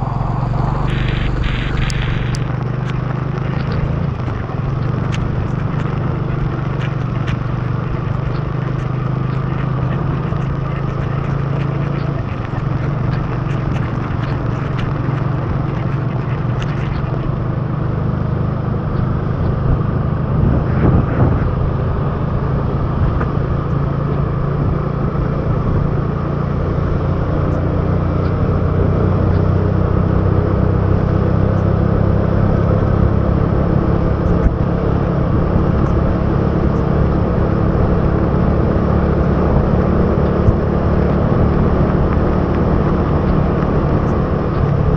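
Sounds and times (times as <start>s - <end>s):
tyre hiss on wet road: 0.0s - 4.0s
wind rush: 0.0s - 17.8s, 19.1s - 26.6s
motorcycle engine running: 0.0s - 44.9s.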